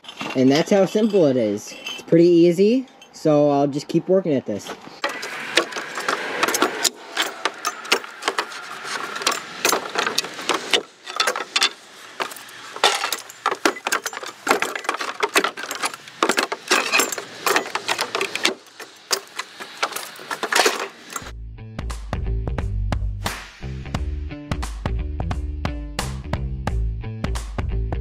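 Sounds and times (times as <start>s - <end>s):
wood creaking: 5.0s - 21.3s.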